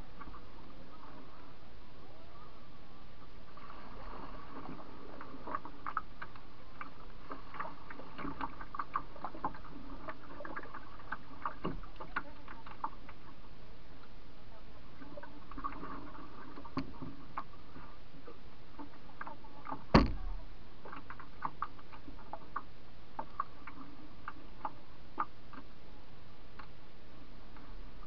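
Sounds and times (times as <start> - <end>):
ticks and clicks on canoe hull: 5.4 - 13.2, 16.6 - 17.5, 18.8 - 25.7
sharp loud knock: 20.0 - 20.4.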